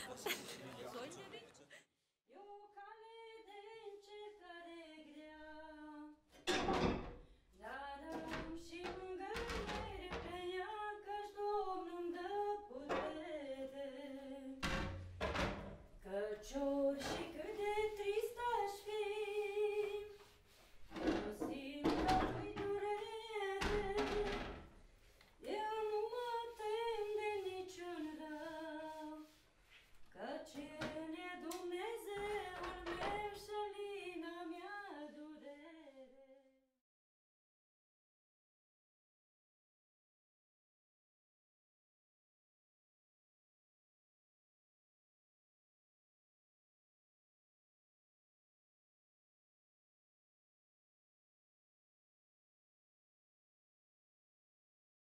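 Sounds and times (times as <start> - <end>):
woman singing: 2.3 - 6.2, 7.6 - 14.6, 16.0 - 20.2, 21.0 - 24.5, 25.4 - 29.3, 30.2 - 36.6.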